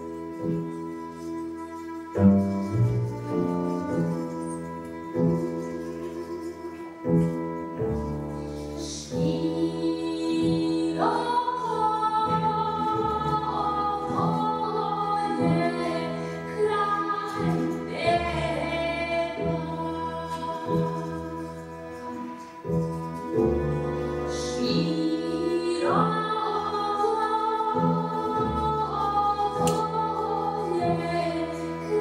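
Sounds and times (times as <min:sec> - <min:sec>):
double bass: 0:00.0 - 0:32.0
violin: 0:00.0 - 0:32.0
wind instrument: 0:00.0 - 0:32.0
woman singing: 0:08.8 - 0:32.0.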